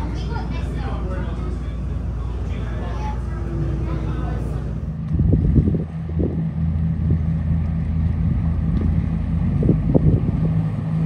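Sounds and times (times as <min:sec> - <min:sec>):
ferry engine droning: 0:00.0 - 0:11.0
wind gusting on microphone: 0:03.6 - 0:11.0.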